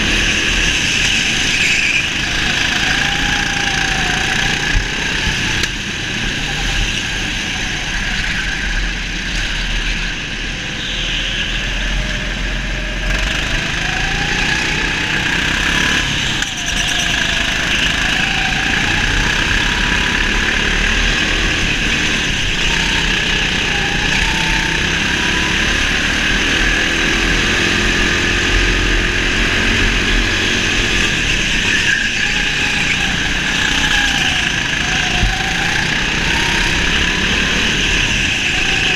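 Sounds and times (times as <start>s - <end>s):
go-kart motor revving: 0.0s - 9.7s, 11.9s - 38.9s.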